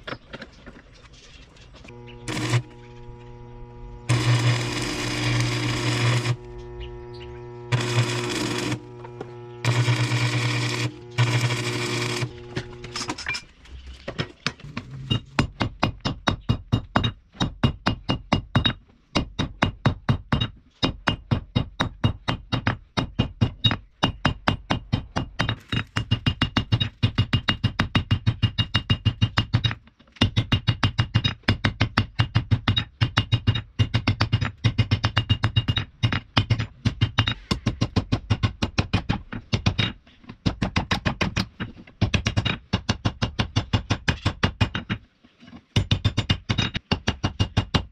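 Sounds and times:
low steady hum: 0:01.8 - 0:15.4.

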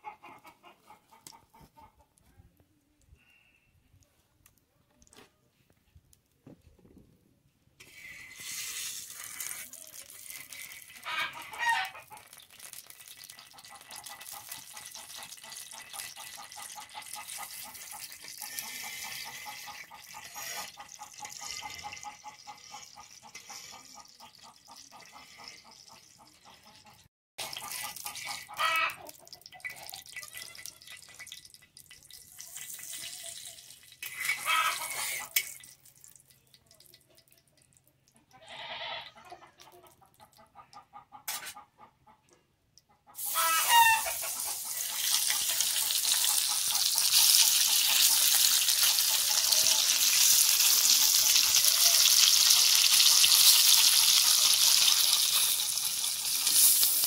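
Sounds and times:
chicken clucking: 0:00.0 - 0:02.9, 0:09.7 - 0:12.4, 0:13.4 - 0:30.6, 0:34.0 - 0:35.4, 0:37.9 - 0:57.0
oil sizzling in a pan: 0:07.8 - 0:21.6, 0:30.0 - 0:35.8, 0:43.2 - 0:57.0.

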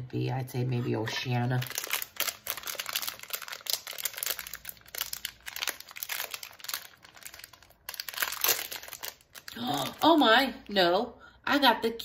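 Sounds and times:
plastic wrapper crinkling: 0:01.1 - 0:10.4.

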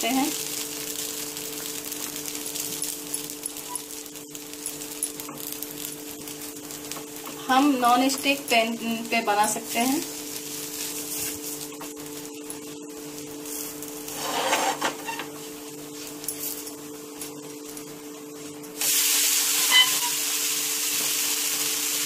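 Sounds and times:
batter sizzling on hot pan: 0:00.0 - 0:22.0
spatula scraping on pan: 0:14.1 - 0:15.3.

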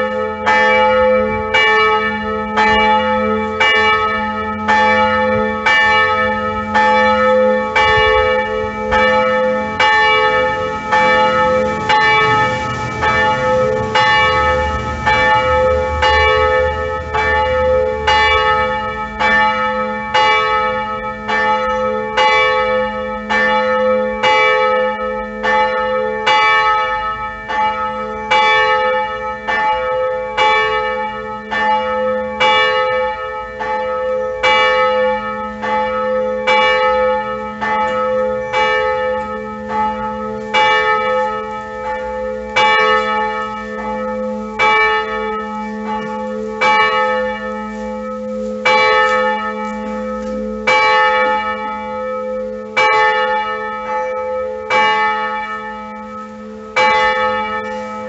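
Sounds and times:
church bell striking: 0:00.0 - 0:58.0.

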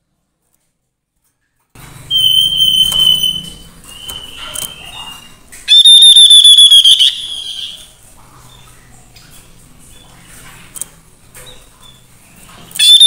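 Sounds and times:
bird whistling call: 0:02.1 - 0:07.9, 0:12.8 - 0:13.0.

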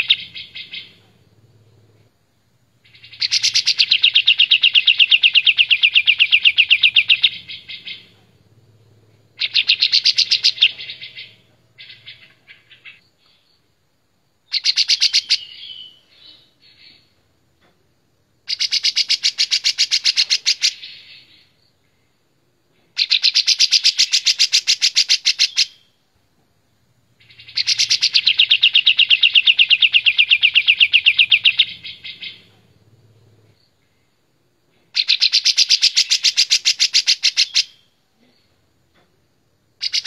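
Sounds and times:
bulbul singing trilled notes: 0:27.2 - 0:32.5.

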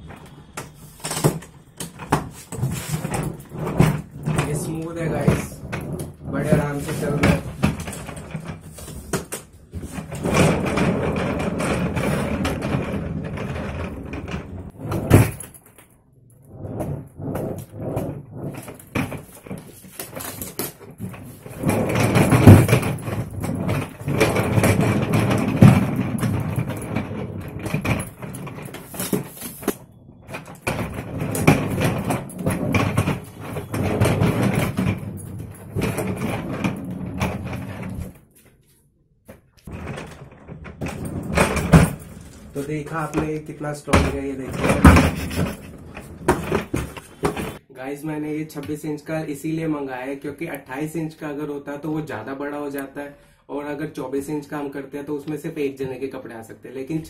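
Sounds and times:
suitcase wheels rolling on tiles: 0:00.0 - 0:38.4, 0:39.3 - 0:47.6
suitcase knocks: 0:21.0 - 0:37.8, 0:43.1 - 0:47.6.

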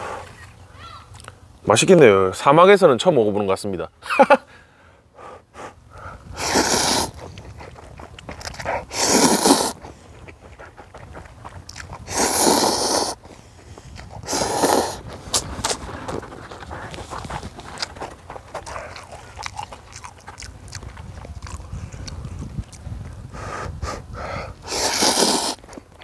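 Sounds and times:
quiet chewing: 0:06.0 - 0:23.8, 0:24.5 - 0:26.0
person slurping noodles: 0:06.4 - 0:07.3, 0:08.8 - 0:09.8, 0:11.9 - 0:13.2, 0:14.1 - 0:15.5, 0:24.6 - 0:25.7.

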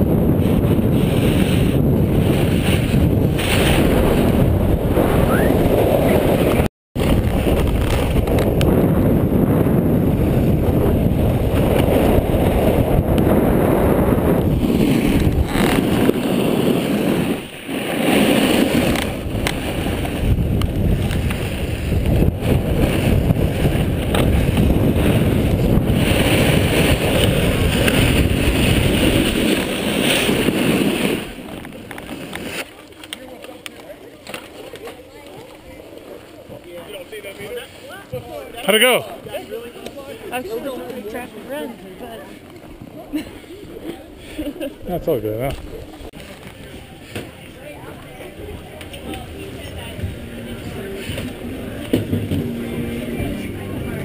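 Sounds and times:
wind rushing over microphone: 0:00.0 - 0:32.2, 0:44.4 - 0:54.0.

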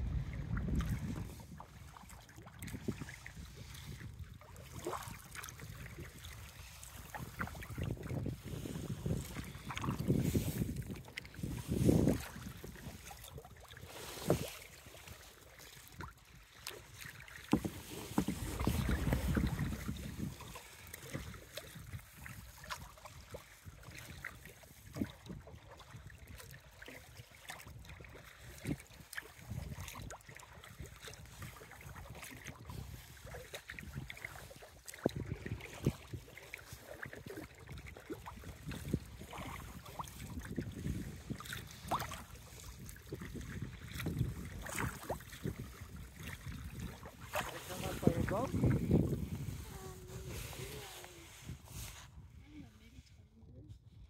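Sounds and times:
wind buffeting microphone: 0:00.0 - 0:02.0, 0:02.6 - 0:13.3, 0:17.6 - 0:22.7, 0:35.0 - 0:36.3, 0:37.2 - 0:52.8
paddle strokes splashing: 0:00.0 - 0:52.4
water lapping at hull: 0:00.0 - 0:54.0.

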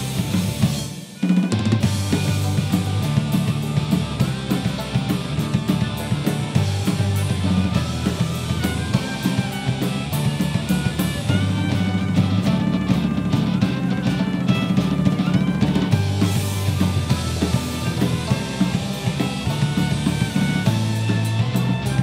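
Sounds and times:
drum kit beat: 0:00.0 - 0:22.0
electric violin: 0:00.0 - 0:22.0.

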